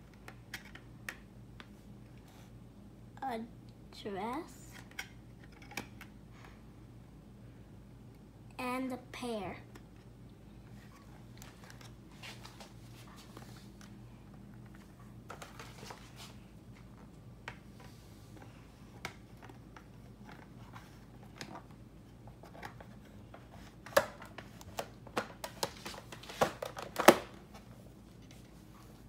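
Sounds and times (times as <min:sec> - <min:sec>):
plastic case handling clicks: 0:23.8 - 0:27.4.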